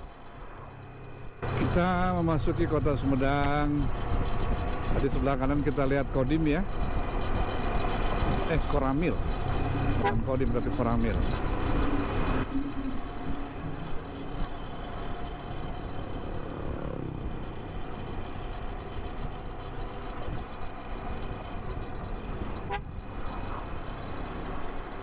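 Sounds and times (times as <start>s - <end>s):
motorcycle engine running: 1.4s - 25.0s
vehicle horn tooting: 10.0s - 10.5s, 22.6s - 23.0s.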